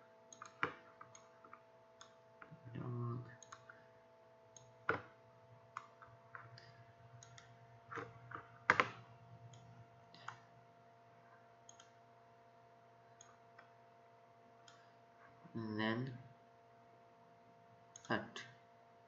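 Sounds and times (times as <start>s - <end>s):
faint steady hum: 0.0s - 19.0s
computer mouse clicking: 0.3s - 2.6s, 3.4s - 3.8s, 4.5s - 5.1s, 5.7s - 10.5s, 11.6s - 12.0s, 13.2s - 13.8s, 14.6s - 14.9s, 17.9s - 18.2s.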